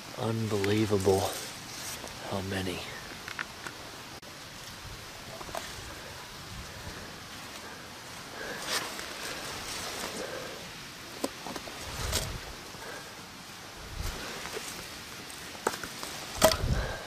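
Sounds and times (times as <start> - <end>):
rustling leaves and undergrowth: 0.0 - 17.0
twigs crackling: 0.0 - 17.0.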